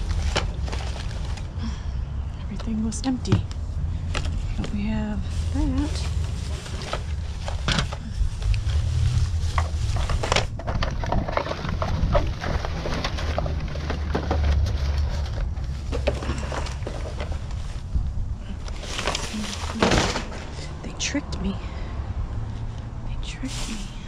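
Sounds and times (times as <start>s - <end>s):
plastic and paper rustling: 0.0s - 1.7s, 4.0s - 20.7s
constant low rumble: 0.0s - 24.0s.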